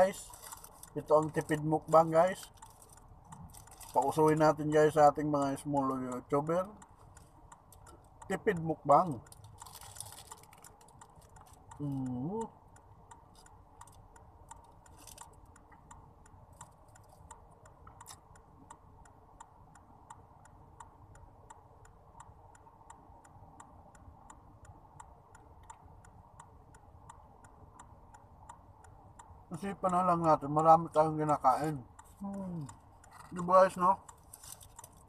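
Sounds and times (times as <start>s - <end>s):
turn signal ticking: 0.0s - 35.0s.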